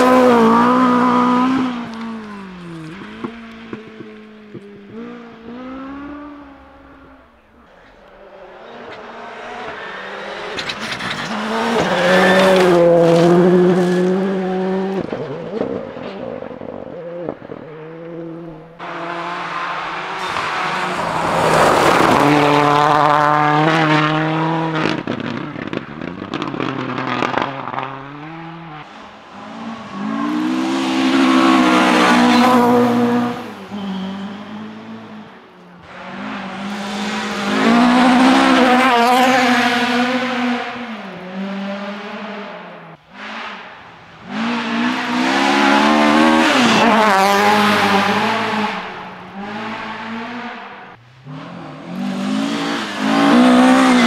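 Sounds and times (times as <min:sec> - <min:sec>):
rally car engines revving past: 0:00.0 - 0:54.0.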